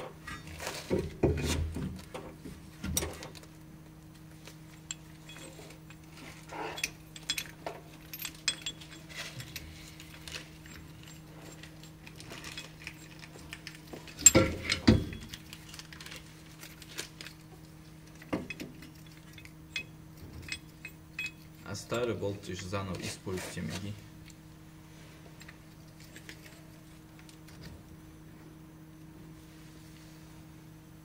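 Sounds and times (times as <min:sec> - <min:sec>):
steady low hum: 0:00.0 - 0:31.0
metal tools clinking: 0:04.7 - 0:23.9, 0:25.4 - 0:27.7.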